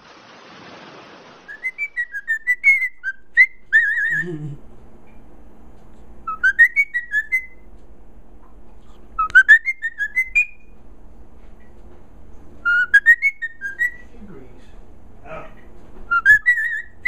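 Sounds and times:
cockatiel whistling: 0:01.4 - 0:04.3, 0:06.2 - 0:07.7, 0:09.2 - 0:10.7, 0:12.6 - 0:14.1, 0:16.1 - 0:17.0.

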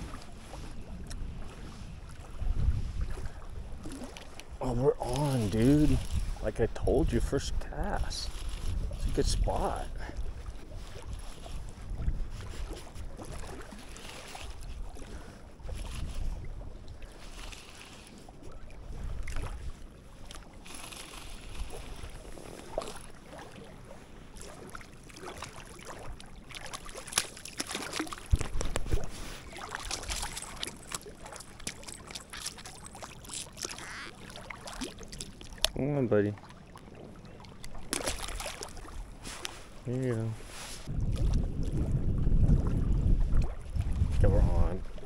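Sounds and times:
wind buffeting microphone: 0:00.0 - 0:13.7, 0:14.5 - 0:17.2, 0:28.3 - 0:29.6, 0:40.8 - 0:45.0
water at lake edge: 0:00.0 - 0:45.0.

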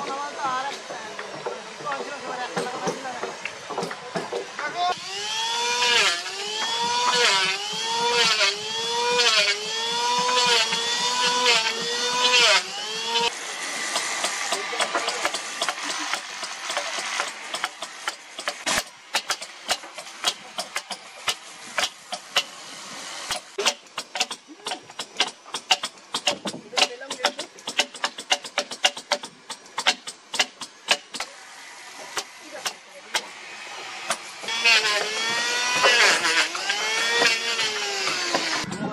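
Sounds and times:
hammers tapping chisels: 0:00.0 - 0:04.7, 0:13.9 - 0:22.5, 0:23.3 - 0:31.3, 0:34.0 - 0:38.9
electric planer cutting wood: 0:04.6 - 0:26.8, 0:31.2 - 0:38.7.

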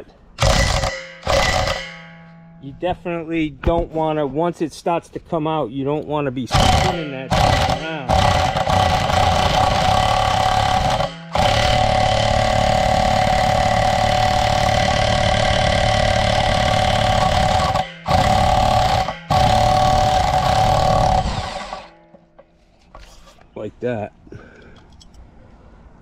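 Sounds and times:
electric impact driver hammering: 0:00.4 - 0:02.2, 0:06.5 - 0:22.2.

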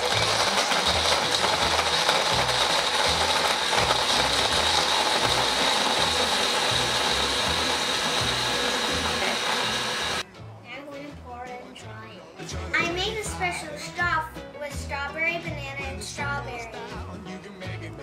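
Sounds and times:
blender whining: 0:00.0 - 0:10.2.

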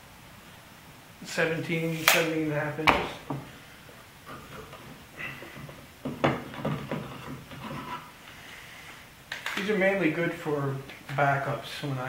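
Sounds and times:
faint rubbing: 0:01.6 - 0:02.3, 0:07.0 - 0:09.0
wooden knocks and clicks: 0:05.6 - 0:07.7.

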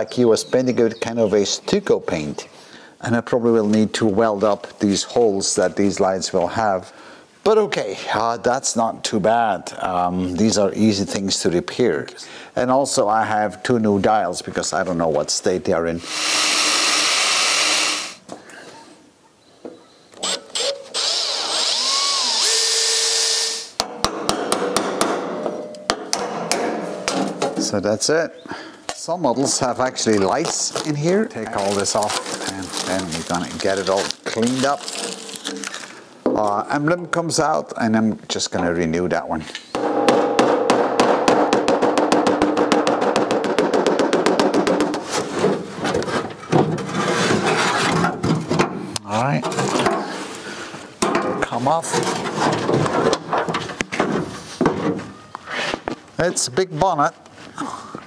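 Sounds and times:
angle grinder running: 0:16.0 - 0:18.2, 0:20.2 - 0:23.7
drill drilling metal: 0:16.0 - 0:18.2, 0:20.2 - 0:23.8.

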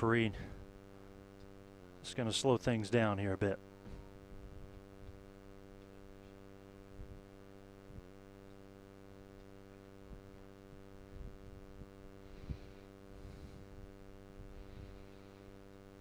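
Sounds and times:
electrical mains hum: 0:00.0 - 0:16.0
faint low thumps: 0:03.6 - 0:05.4, 0:09.8 - 0:15.2.

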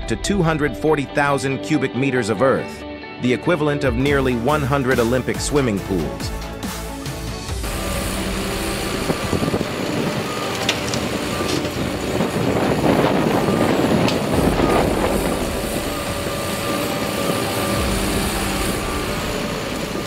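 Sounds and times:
excavator mechanical rumble: 0:07.5 - 0:20.0.

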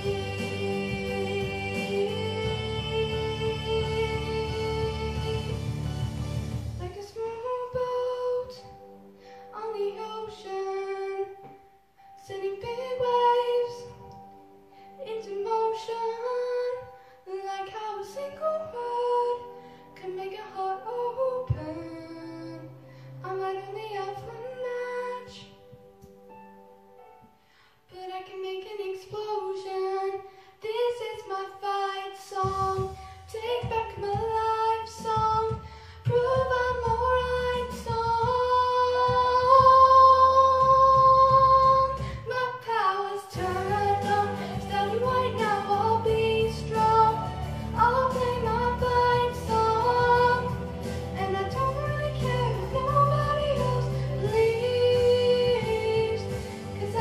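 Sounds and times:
backing music with beat: 0:00.0 - 0:09.3, 0:32.2 - 0:42.4, 0:43.3 - 0:57.0
girl singing pop ballad: 0:00.0 - 0:57.0.

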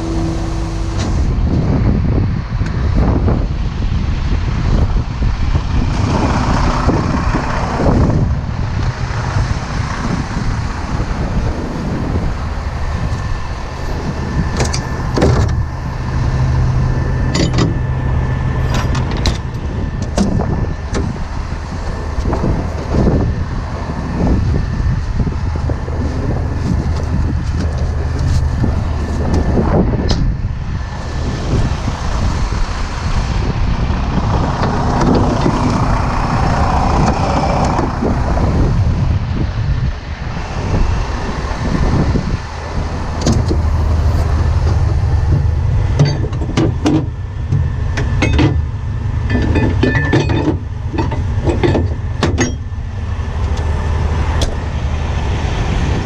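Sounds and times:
truck engine idling: 0:00.0 - 0:56.0
metal chains clanking: 0:17.3 - 0:17.8, 0:49.3 - 0:52.7.

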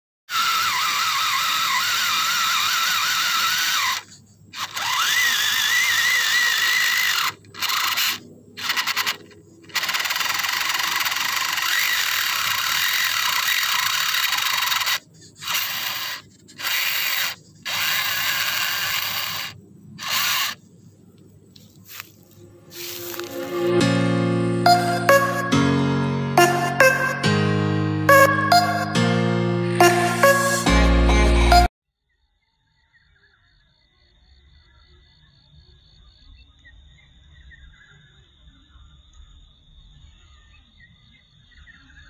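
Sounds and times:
toy car motor whining and gears grinding: 0:00.3 - 0:20.6.

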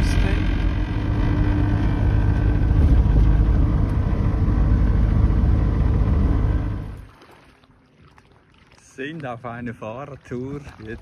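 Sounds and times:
truck diesel engine rumble: 0:00.0 - 0:07.0.

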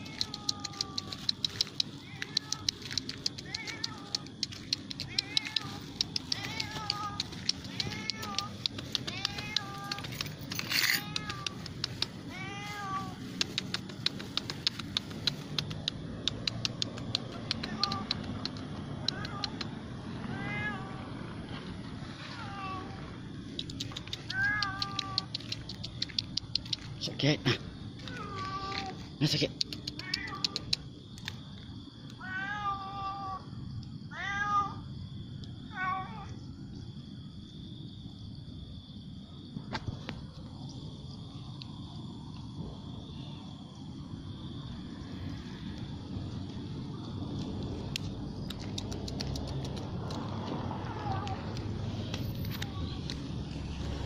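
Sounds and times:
cat meowing: 0:00.0 - 0:10.2, 0:10.8 - 0:13.4, 0:19.0 - 0:19.6, 0:20.2 - 0:21.1, 0:24.2 - 0:25.5, 0:28.0 - 0:29.1, 0:30.0 - 0:30.7, 0:32.2 - 0:33.4
quick sharp clicks: 0:00.0 - 0:12.2, 0:13.2 - 0:19.8, 0:23.5 - 0:27.1, 0:29.2 - 0:31.4, 0:47.3 - 0:53.3.

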